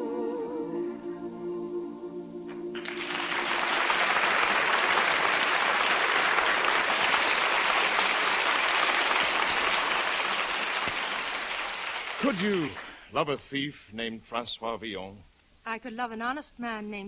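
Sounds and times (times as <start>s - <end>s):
studio audience applauding: 2.7s - 13.1s.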